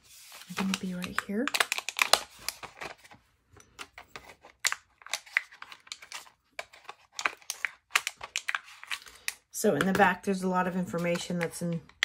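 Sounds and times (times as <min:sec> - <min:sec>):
packaging crinkling and clicking: 0:00.5 - 0:09.4.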